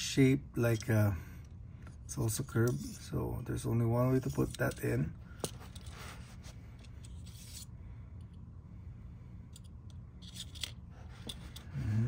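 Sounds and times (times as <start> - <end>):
plastic sword scraping into scabbard: 7.0 - 7.7.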